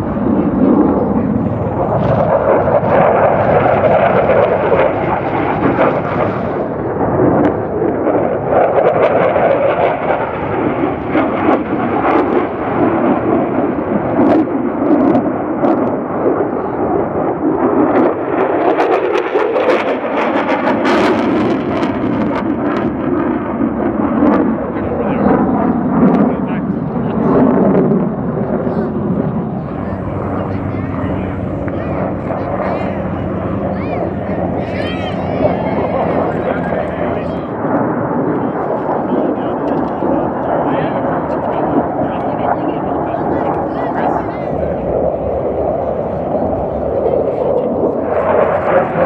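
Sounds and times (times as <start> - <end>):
fighter jet passing overhead: 0.0 - 49.0.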